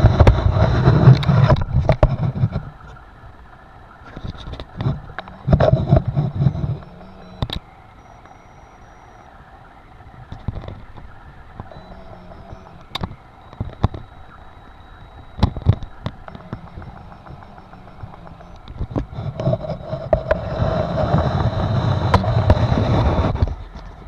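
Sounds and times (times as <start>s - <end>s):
sharp clicks: 4.2s - 9.3s, 10.2s - 20.5s.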